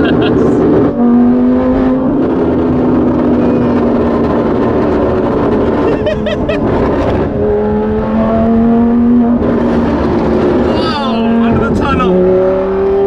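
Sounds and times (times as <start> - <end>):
car engine droning in cabin: 0.0 - 13.0.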